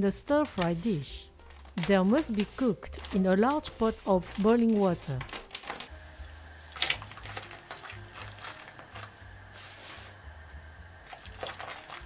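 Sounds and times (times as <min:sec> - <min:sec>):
water boiling and bubbling: 0:05.9 - 0:12.0
splashing and hiss: 0:06.7 - 0:12.0
noodles splashing into water: 0:11.1 - 0:12.0.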